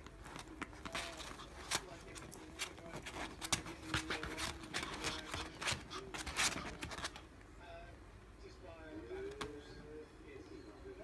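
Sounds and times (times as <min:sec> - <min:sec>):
dog paws scrabbling on cushion: 0:00.0 - 0:07.3.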